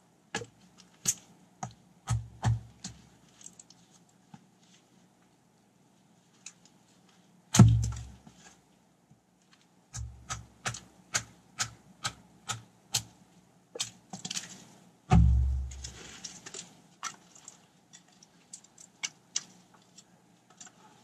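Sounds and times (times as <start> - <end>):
hatchet chopping wood: 1.6 - 2.9, 7.6 - 8.2, 10.0 - 13.1, 15.1 - 16.0.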